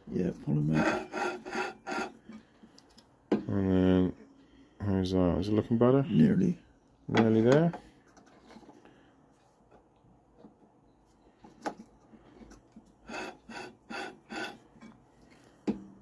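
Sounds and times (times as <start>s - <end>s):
grinding wheel scraping metal: 0.4s - 2.5s, 12.4s - 15.0s.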